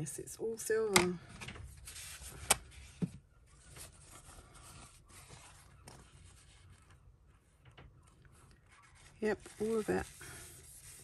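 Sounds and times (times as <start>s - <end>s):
tissue paper rustling: 8.4s - 11.0s.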